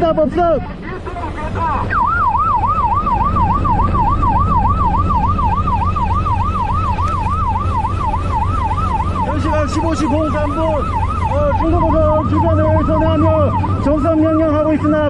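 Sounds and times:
boat engine rumble: 0.0 - 15.0
wind: 0.0 - 15.0
warbling electronic siren: 1.8 - 15.0.

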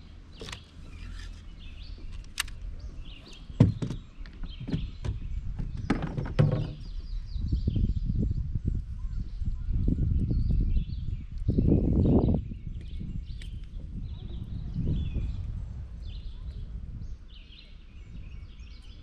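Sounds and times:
sharp hollow knocks: 3.5 - 7.0
low rumble: 6.7 - 18.8.

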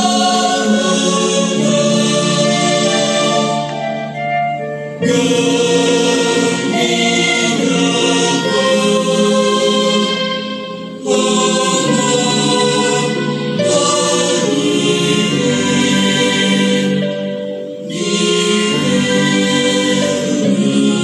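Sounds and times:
choir singing devotional song: 0.0 - 21.0.

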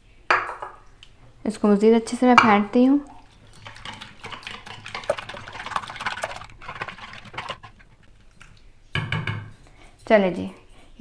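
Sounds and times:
whisk clicking on plastic bowl: 3.3 - 8.1.

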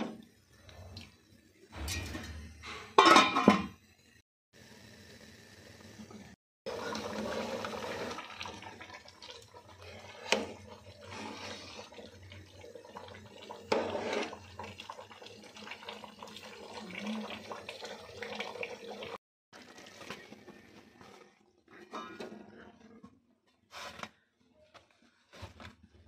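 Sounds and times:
rice boiling and bubbling: 3.9 - 21.9.

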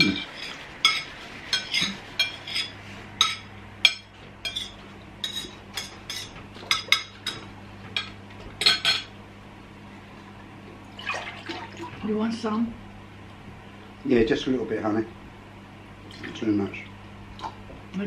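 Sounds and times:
cutlery clinking on a plate: 0.0 - 9.1
low steady hum: 0.0 - 18.0.

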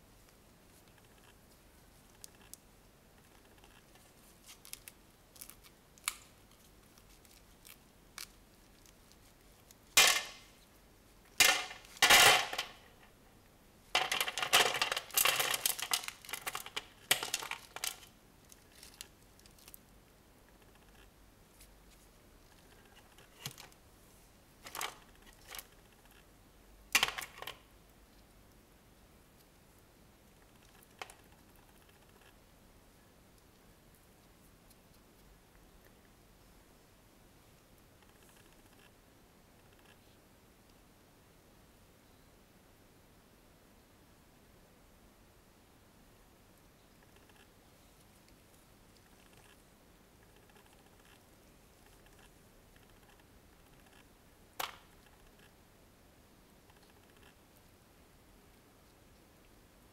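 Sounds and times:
plastic pot crinkling: 3.4 - 10.5, 14.0 - 19.8, 24.6 - 25.7.

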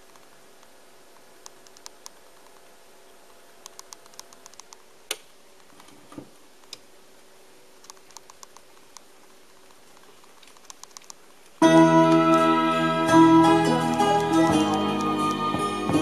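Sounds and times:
vinyl clicks and pops: 3.6 - 5.7, 7.8 - 12.4, 13.8 - 15.5
music from record: 11.6 - 16.0.

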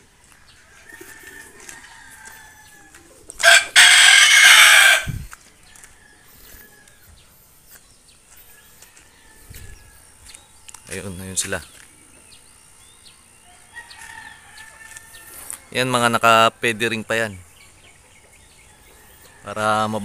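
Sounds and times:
rooster crowing: 0.0 - 7.2, 8.5 - 10.2, 13.4 - 16.6.

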